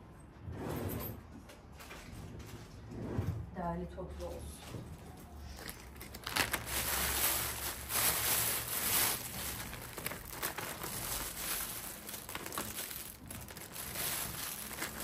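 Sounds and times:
plastic bags crinkling: 0:05.4 - 0:15.0.

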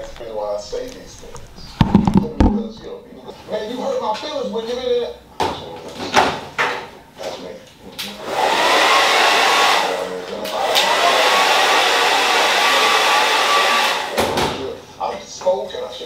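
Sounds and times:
hair dryer blowing: 0:08.1 - 0:14.4.

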